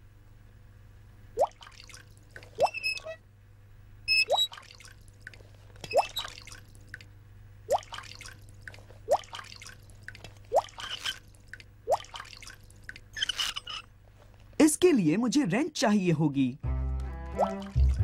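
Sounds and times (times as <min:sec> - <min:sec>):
cartoon water drops plinking: 0:04.1 - 0:04.7, 0:05.9 - 0:06.4, 0:07.7 - 0:08.1, 0:17.4 - 0:18.0.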